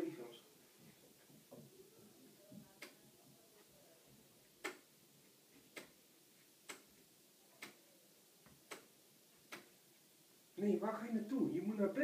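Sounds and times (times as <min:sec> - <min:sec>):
clock ticking faintly: 0:04.6 - 0:04.9.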